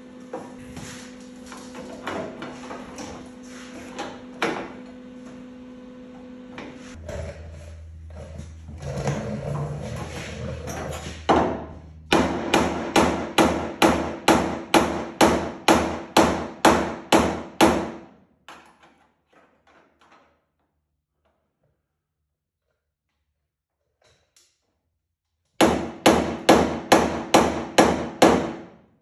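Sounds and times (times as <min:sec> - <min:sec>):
hammer hitting sheet metal: 0:11.3 - 0:18.2, 0:25.6 - 0:28.8.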